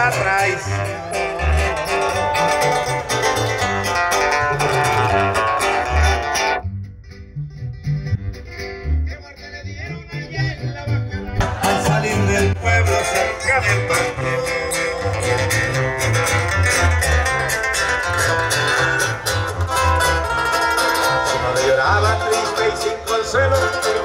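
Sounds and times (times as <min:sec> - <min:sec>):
acoustic guitar: 0:00.0 - 0:24.0
sousaphone bass line: 0:00.0 - 0:24.0
live brass band music: 0:04.5 - 0:06.6
drums: 0:11.4 - 0:14.0.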